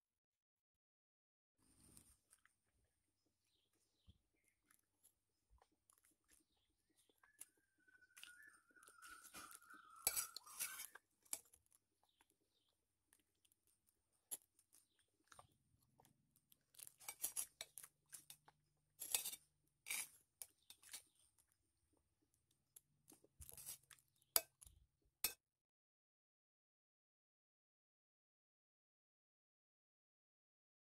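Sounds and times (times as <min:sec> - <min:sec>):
person chewing food: 0:01.7 - 0:19.2, 0:20.0 - 0:24.8.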